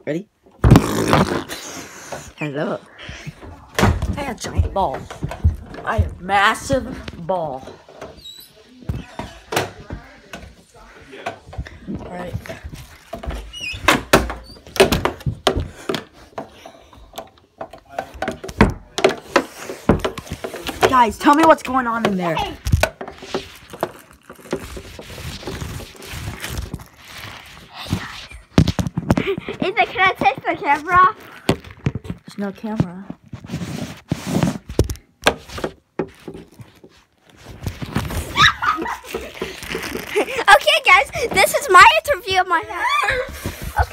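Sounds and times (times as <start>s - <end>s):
knocks and bumps: 3.0s - 8.2s.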